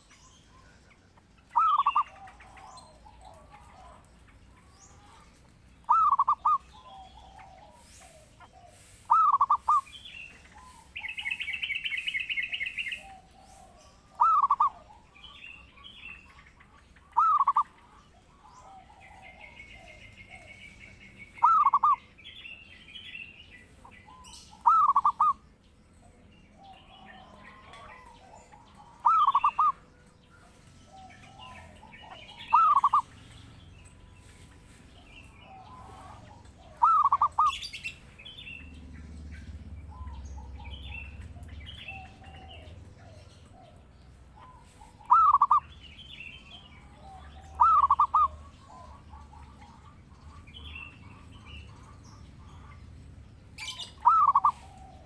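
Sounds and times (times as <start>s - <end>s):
faint bird chirps: 0.0s - 26.1s, 26.7s - 43.5s, 44.4s - 53.0s
dove cooing: 1.5s - 5.2s, 5.8s - 16.3s, 17.1s - 22.1s, 24.0s - 25.4s, 26.6s - 33.2s, 35.0s - 38.7s, 39.5s - 45.7s, 46.4s - 52.8s, 53.6s - 55.0s.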